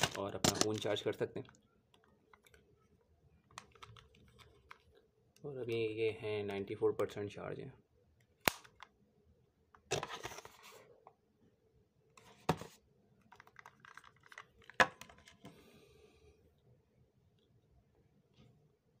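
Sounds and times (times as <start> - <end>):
small plastic clicks: 3.4 - 5.0
sharp plastic snaps: 8.4 - 9.0.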